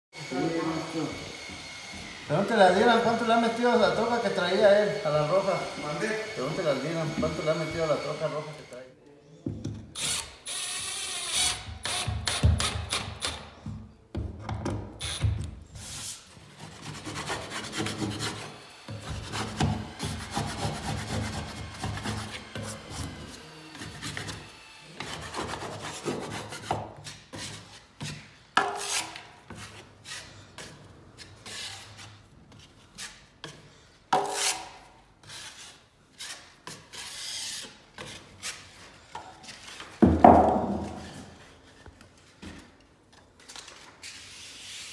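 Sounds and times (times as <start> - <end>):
metal knife scraping drywall: 15.6 - 39.0.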